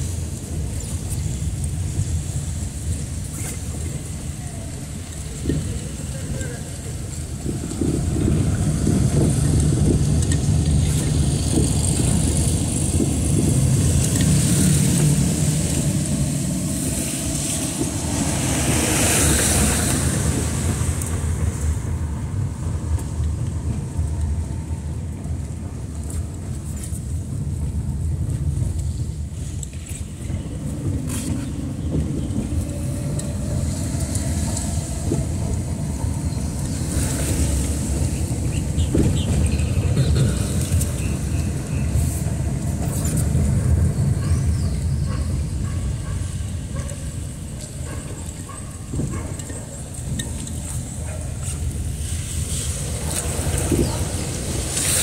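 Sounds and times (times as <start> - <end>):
car engine rumble: 0.0 - 55.0
tyre hiss on wet road: 11.1 - 21.8, 50.7 - 55.0.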